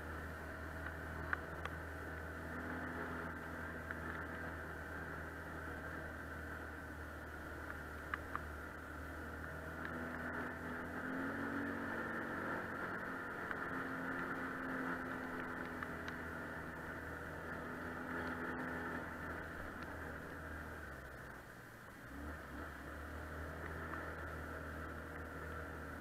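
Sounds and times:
atv engine running: 0.0s - 26.0s
sharp clicks from bumps: 0.7s - 2.3s, 2.9s - 4.7s, 7.5s - 8.9s, 9.7s - 11.1s, 11.9s - 17.3s, 17.9s - 22.0s, 23.0s - 26.0s.

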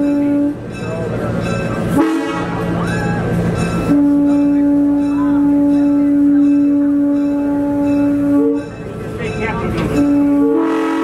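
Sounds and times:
locomotive air horn blast: 2.0s - 2.7s, 3.9s - 8.6s, 9.9s - 11.0s.

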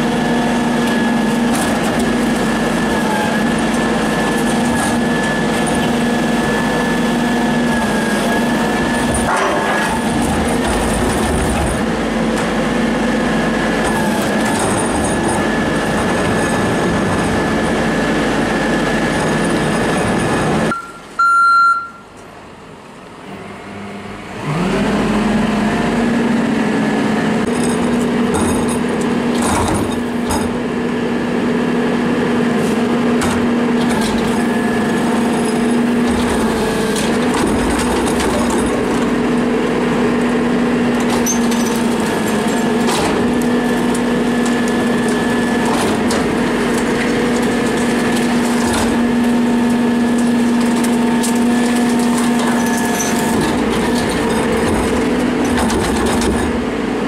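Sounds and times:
garbage truck engine humming: 0.0s - 57.0s
cart tipper knocks and clatter: 27.5s - 30.6s, 41.0s - 56.7s.

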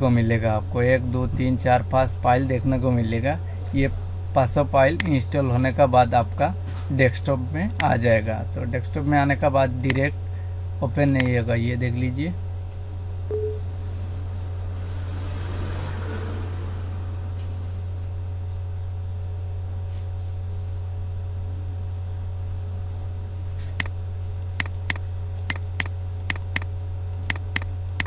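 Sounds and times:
steady low hum: 0.0s - 28.0s
computer mouse clicking: 23.7s - 28.0s.

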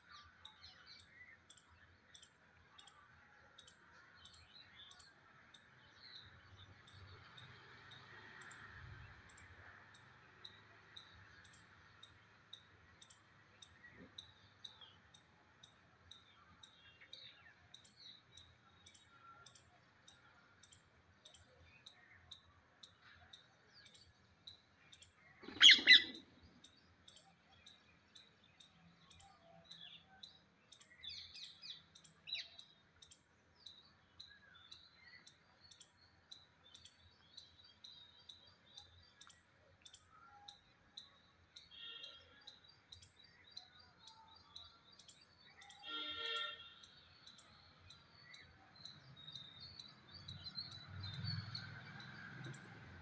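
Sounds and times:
beaks pecking on concrete: 8.0s - 37.7s
loud harsh parakeet call: 25.4s - 26.3s
parakeets chirping: 25.4s - 26.3s.

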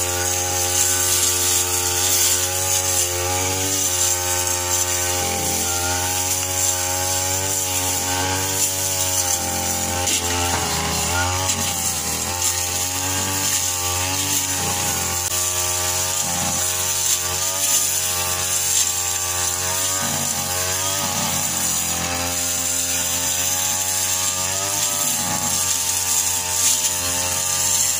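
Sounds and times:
brush cutter engine running: 0.0s - 27.9s.

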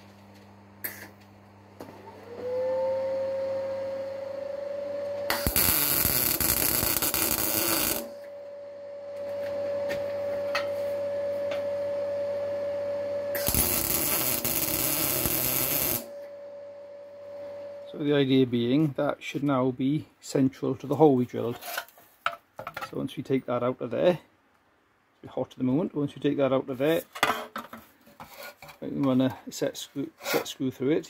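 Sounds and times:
steady hum: 0.0s - 18.8s
electric welding arc noise: 5.3s - 8.3s, 13.3s - 16.2s.

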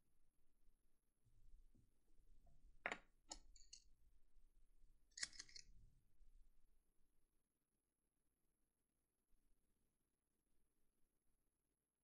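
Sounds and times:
small parts clicking: 5.2s - 5.7s.

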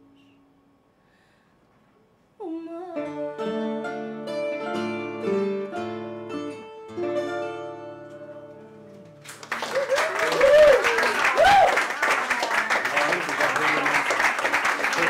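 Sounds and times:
plucked guitar melody: 2.9s - 9.3s
lower guitar notes: 3.0s - 9.3s.

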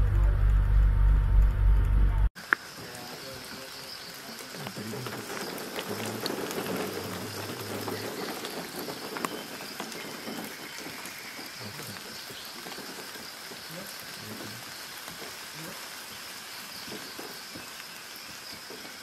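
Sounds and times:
low hum: 0.0s - 2.3s
steady high hum: 0.0s - 2.3s
patter of small ticks: 2.4s - 19.0s.

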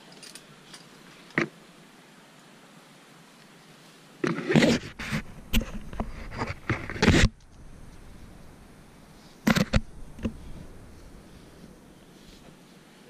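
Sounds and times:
nylon sling rustling: 4.4s - 13.0s.

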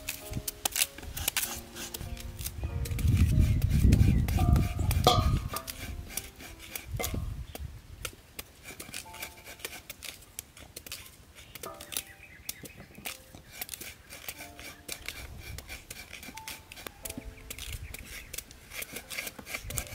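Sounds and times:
knife slicing pumpkin: 0.0s - 19.9s.

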